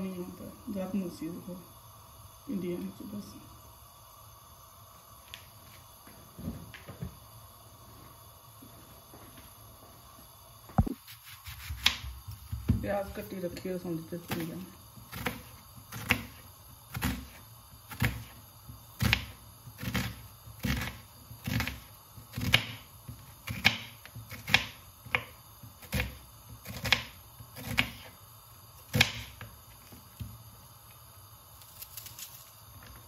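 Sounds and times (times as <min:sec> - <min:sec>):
knife slicing onion on board: 0:10.8 - 0:12.8, 0:14.2 - 0:28.2, 0:28.8 - 0:30.4.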